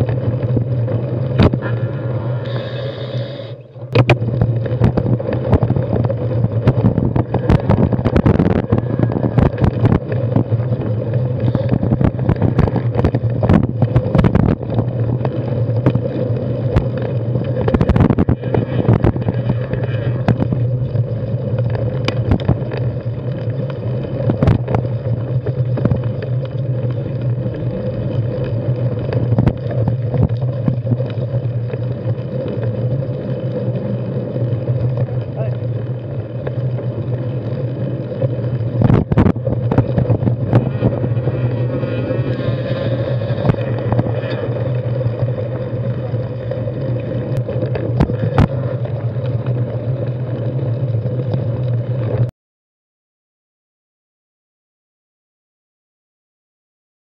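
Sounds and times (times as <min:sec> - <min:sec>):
bike rattling over rocks: 0:00.0 - 0:02.8, 0:03.8 - 0:52.3
wind on microphone: 0:01.4 - 0:22.7, 0:24.2 - 0:25.2, 0:38.6 - 0:45.8
tyres rumbling on dirt: 0:03.8 - 0:52.3.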